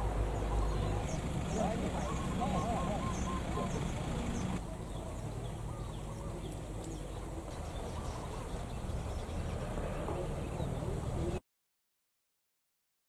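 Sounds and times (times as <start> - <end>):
faint bird chirps: 0.4 - 11.4.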